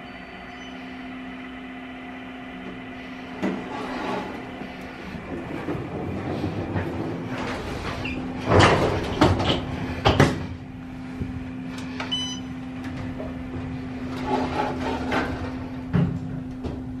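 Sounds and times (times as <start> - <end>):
steady low hum: 0.0 - 17.0
elevator doors sliding closed: 2.8 - 16.4
short electronic beep: 12.1 - 12.5.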